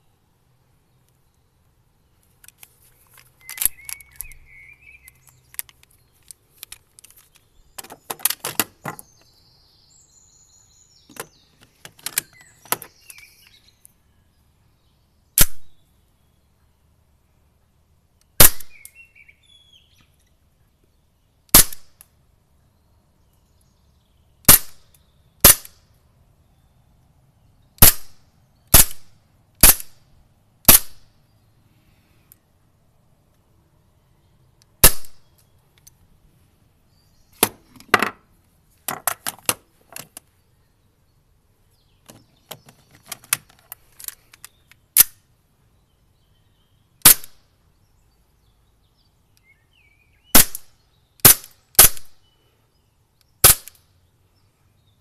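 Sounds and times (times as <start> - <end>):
pistol handling clicks and rattles: 2.4 - 4.4, 5.0 - 9.0, 11.1 - 13.5, 42.1 - 45.2
airsoft pistol shots: 15.4 - 15.7, 18.4 - 18.8, 21.5 - 21.9, 24.5 - 24.8, 25.4 - 25.8, 27.8 - 30.0, 30.7 - 31.0, 34.8 - 35.2, 47.0 - 47.4, 50.3 - 52.1, 53.4 - 53.8.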